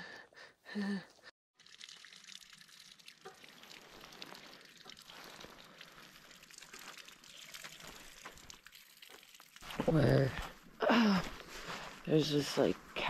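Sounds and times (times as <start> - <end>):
water trickling and splashing: 1.5 - 10.8.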